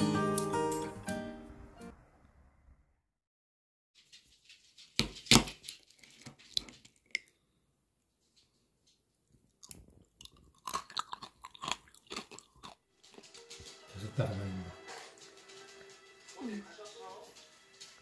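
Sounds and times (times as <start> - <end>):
small crunches: 9.5 - 13.8.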